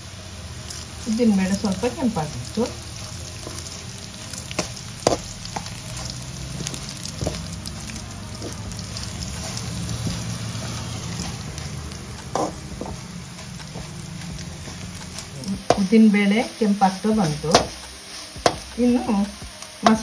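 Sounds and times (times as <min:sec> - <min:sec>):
food frying in oil: 0:00.0 - 0:20.0
metal spoon scraping pan: 0:08.4 - 0:15.8.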